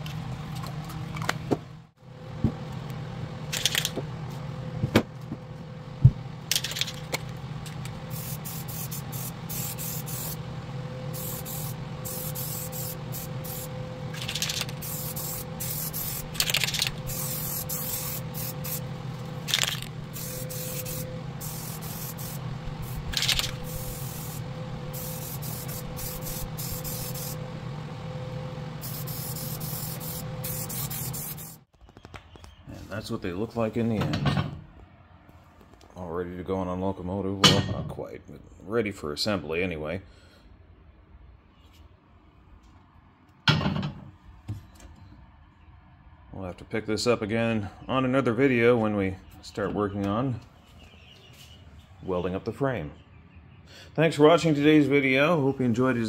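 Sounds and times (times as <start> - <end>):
steady low hum: 0.0 - 31.7
spray-paint can hissing: 8.1 - 10.4, 11.1 - 27.4, 28.8 - 31.6.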